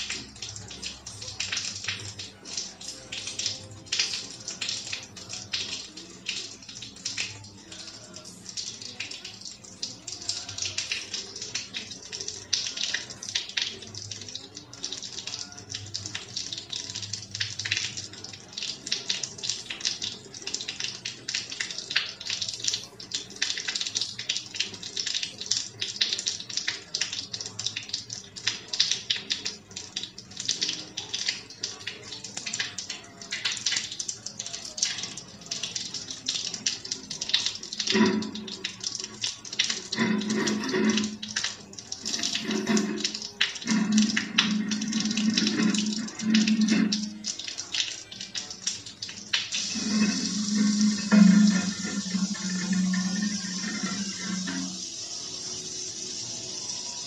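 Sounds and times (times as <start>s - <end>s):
rain falling: 10.0s - 54.8s.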